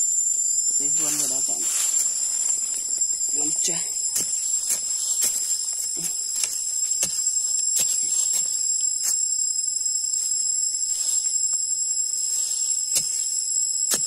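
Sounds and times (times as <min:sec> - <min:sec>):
high-pitched insect chorus: 0:00.0 - 0:14.0
hand tool striking sandy soil: 0:03.3 - 0:09.3, 0:12.7 - 0:14.0.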